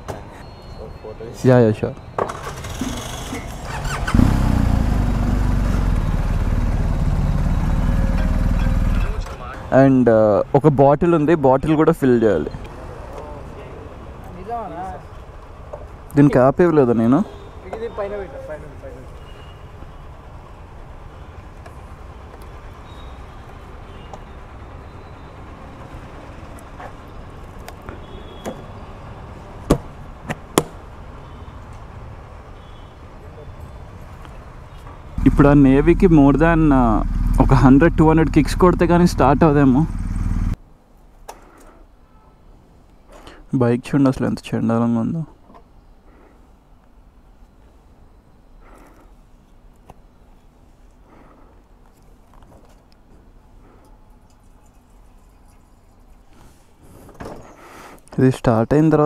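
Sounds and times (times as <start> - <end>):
motorcycle engine starting and idling: 2.2 - 9.4, 35.2 - 40.6.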